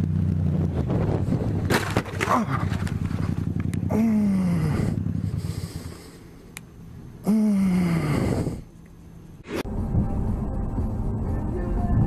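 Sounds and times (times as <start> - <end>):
car and road noise: 0.0 - 12.0
man groaning: 3.9 - 5.0, 7.2 - 8.6.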